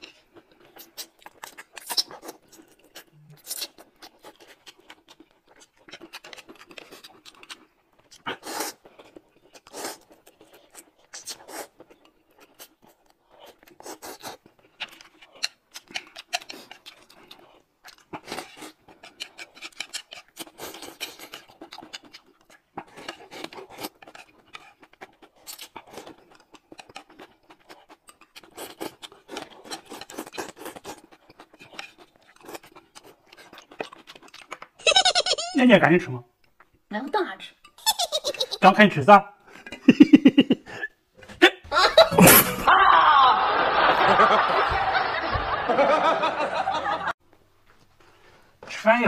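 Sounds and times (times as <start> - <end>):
noodles slurped and chewed: 0.0 - 34.8
chopsticks scraping a plate: 28.6 - 32.7.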